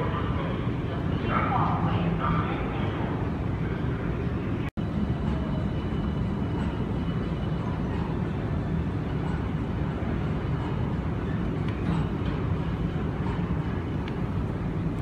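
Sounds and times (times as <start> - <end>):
terminal background rumble: 0.0 - 15.0.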